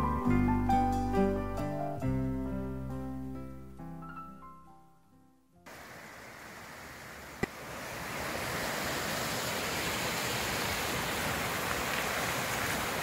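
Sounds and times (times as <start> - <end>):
stream rushing over rocks: 5.7 - 13.0.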